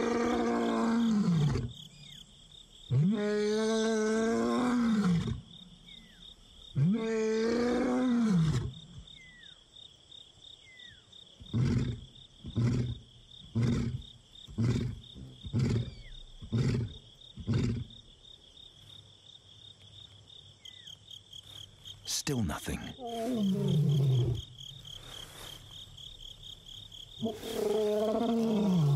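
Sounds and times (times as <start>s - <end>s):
lion roaring: 23.0s - 24.4s, 27.2s - 28.9s.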